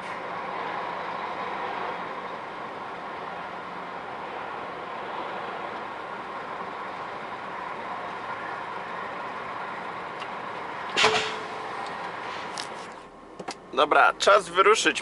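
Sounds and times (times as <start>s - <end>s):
truck engine idling: 0.0s - 15.0s
loud sharp knock: 11.0s - 11.5s.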